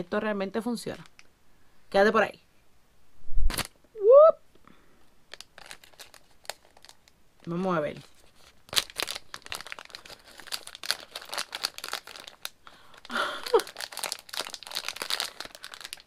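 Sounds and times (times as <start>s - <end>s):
plastic packaging crinkling: 5.3s - 16.0s.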